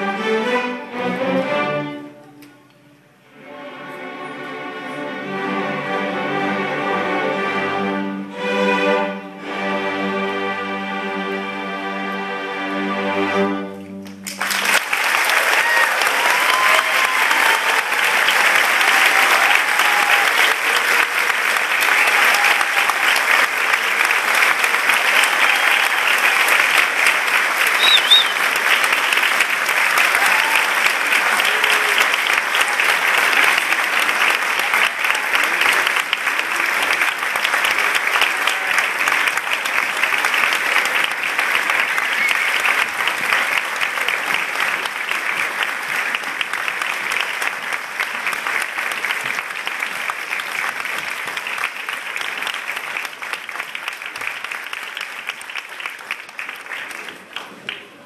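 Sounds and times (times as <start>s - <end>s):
audience applauding: 14.0s - 58.0s.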